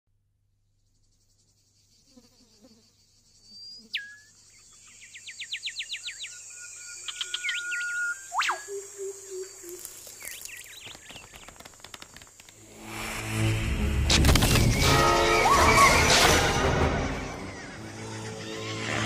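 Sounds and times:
high insect buzz: 0:00.8 - 0:14.0
birds chirping: 0:02.8 - 0:12.5
swooping bird whistle: 0:06.2 - 0:08.9.

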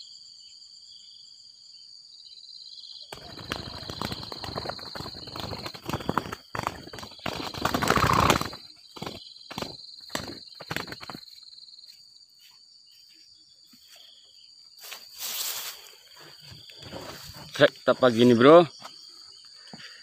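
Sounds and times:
high insect drone: 0:00.0 - 0:20.0
dove wings flapping: 0:03.1 - 0:11.3.

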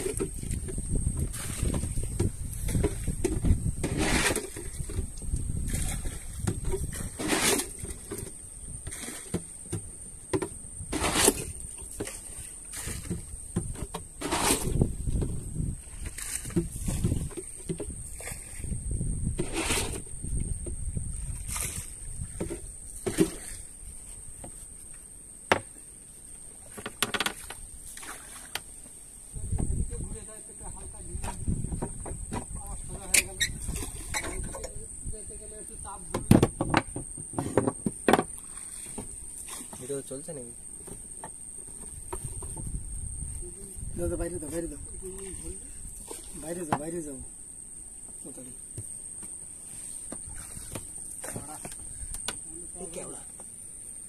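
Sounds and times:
wooden knocks on a boat: 0:00.0 - 0:04.0, 0:12.9 - 0:14.0, 0:16.4 - 0:18.0, 0:25.5 - 0:25.8, 0:31.1 - 0:33.1, 0:36.0 - 0:39.9, 0:46.6 - 0:47.0
oar splashing in water: 0:00.0 - 0:24.6, 0:26.5 - 0:29.4, 0:31.2 - 0:34.8, 0:36.0 - 0:42.6, 0:45.2 - 0:47.1, 0:49.9 - 0:52.1.

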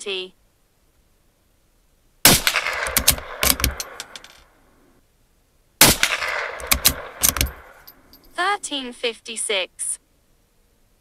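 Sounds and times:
rifle shots: 0:02.2 - 0:04.4, 0:05.8 - 0:07.8
rifle action clicks: 0:02.4 - 0:04.4, 0:05.8 - 0:07.9.

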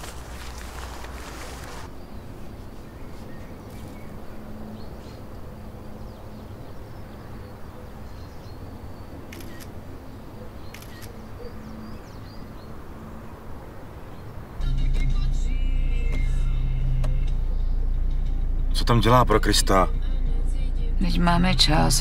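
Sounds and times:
camera shutter clicks: 0:09.3 - 0:09.8, 0:10.6 - 0:11.2.

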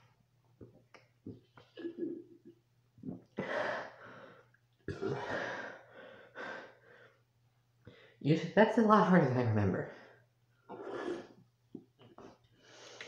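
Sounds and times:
person gulping soda: 0:00.6 - 0:03.4.

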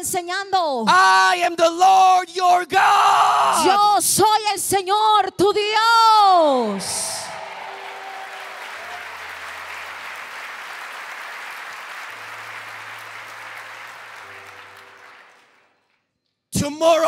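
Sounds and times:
congregation applauding: 0:06.7 - 0:16.1.

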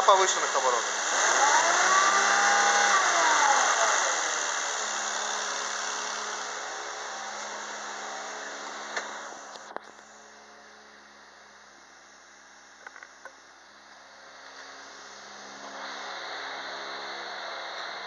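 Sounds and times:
car engine running: 0:00.0 - 0:09.6.

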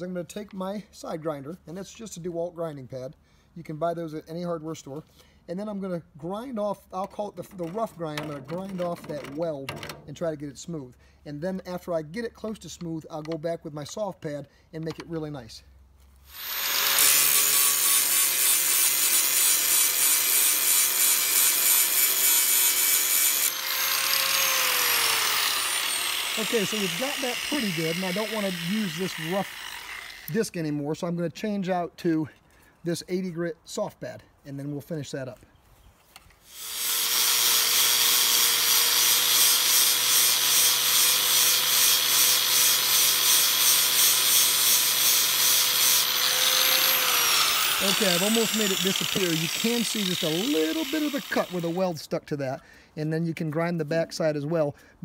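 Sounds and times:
angle grinder grinding metal: 0:16.3 - 0:30.5, 0:36.5 - 0:51.9.

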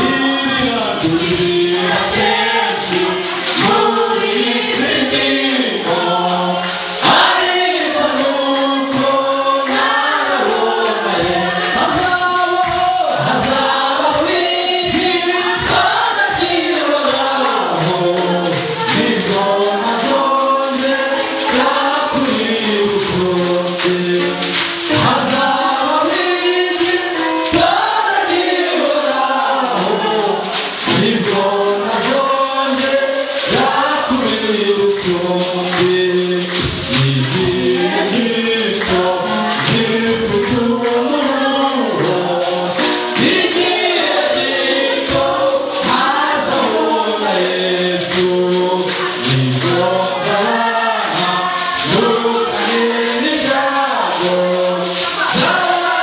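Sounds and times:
choir singing gospel: 0:00.0 - 0:56.0
man singing into a microphone: 0:00.0 - 0:56.0
steady beat: 0:00.0 - 0:56.0.

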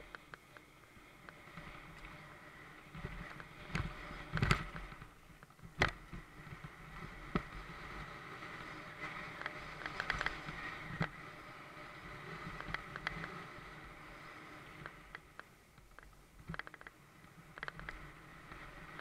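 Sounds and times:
bike tyres rumbling on dirt: 0:00.0 - 0:19.0
bike clanks and rattles: 0:09.4 - 0:11.2.

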